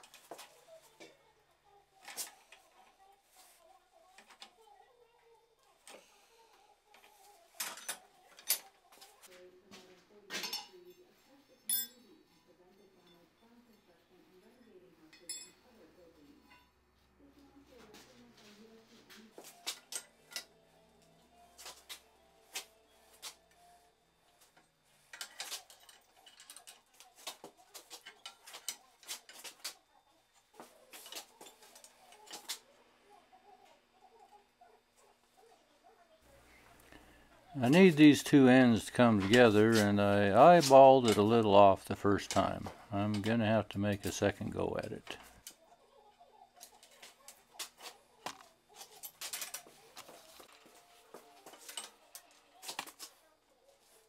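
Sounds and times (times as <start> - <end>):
metal tools clinking on anvil: 11.7 - 12.0, 15.1 - 15.6.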